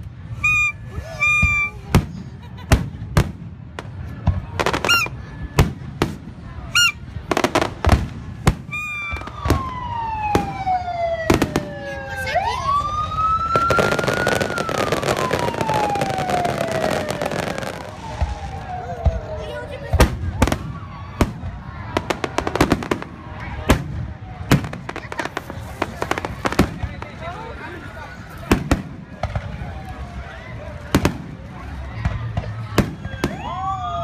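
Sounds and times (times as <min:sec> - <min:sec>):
fireworks bangs and crackles: 0:00.0 - 0:34.0
fireworks whistling: 0:00.2 - 0:02.9, 0:04.6 - 0:05.8, 0:06.6 - 0:11.8, 0:13.5 - 0:23.1
police siren wailing: 0:08.7 - 0:23.1.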